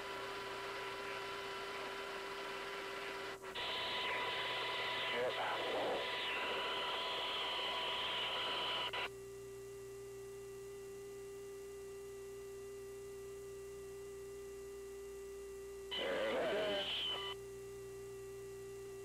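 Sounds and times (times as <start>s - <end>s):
electrical hum: 0.0s - 19.0s
radio channel hiss: 3.5s - 9.1s, 15.9s - 17.4s.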